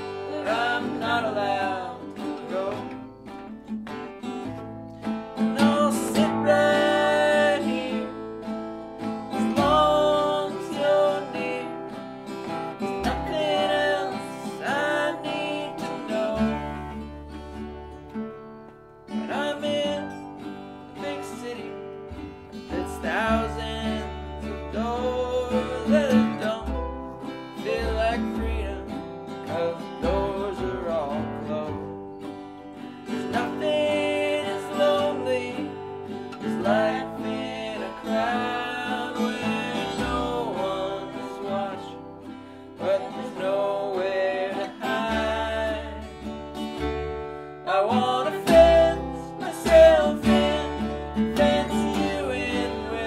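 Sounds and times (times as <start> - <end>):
man singing: 0.0 - 3.1, 5.4 - 17.1, 19.1 - 32.0, 33.0 - 46.8, 47.6 - 53.0
woman singing: 0.0 - 3.1, 5.5 - 8.4, 9.4 - 11.9, 12.8 - 17.0, 33.2 - 42.0, 42.8 - 46.2, 47.7 - 53.0
acoustic guitar: 0.0 - 53.0
mandolin: 0.0 - 53.0
ukulele: 0.0 - 53.0
upright bass: 0.0 - 53.0.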